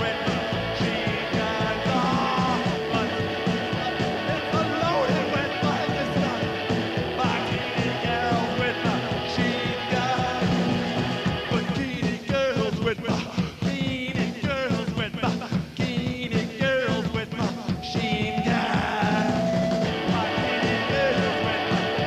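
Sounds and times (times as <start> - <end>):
man singing: 0.0 - 22.0
rock band playing: 0.0 - 22.0.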